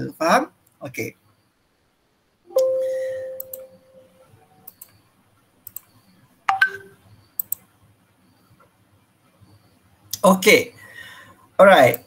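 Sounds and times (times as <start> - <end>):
computer notification chime: 2.5 - 4.2
short alert tone: 2.5 - 4.2
mouse clicks: 3.4 - 3.7, 5.6 - 6.0, 7.4 - 7.6.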